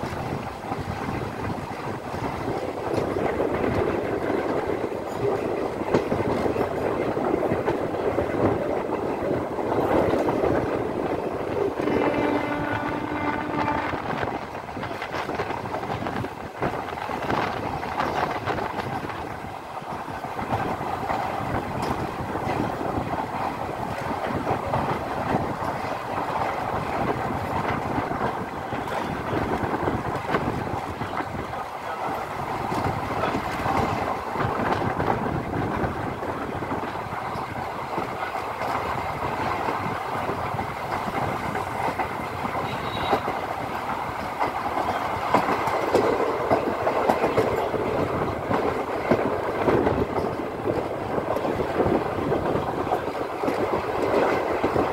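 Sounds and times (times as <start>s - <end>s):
train wheels on rails: 0.0s - 54.9s
train horn: 11.8s - 14.3s, 42.6s - 43.3s.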